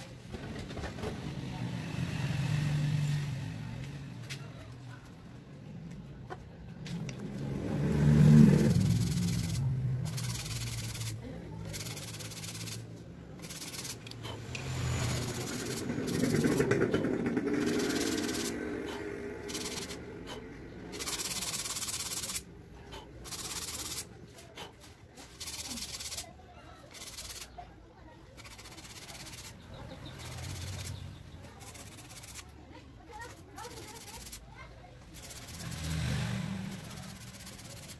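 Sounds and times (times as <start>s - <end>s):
vehicle engine passing: 0.0s - 37.9s
tool scraping sanding disc: 8.1s - 27.6s, 28.4s - 32.5s, 33.1s - 37.9s.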